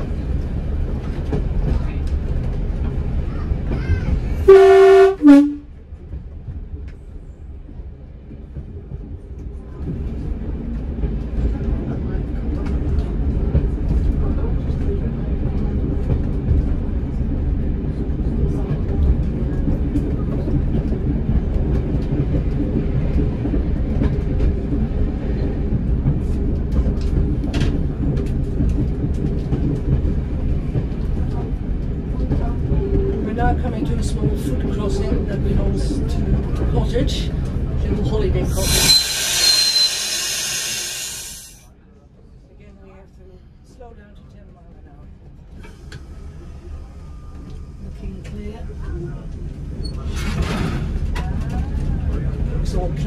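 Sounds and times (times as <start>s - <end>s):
railcar rumbling along track: 0.0s - 53.0s
two-tone train horn: 4.5s - 5.7s, 38.6s - 40.2s.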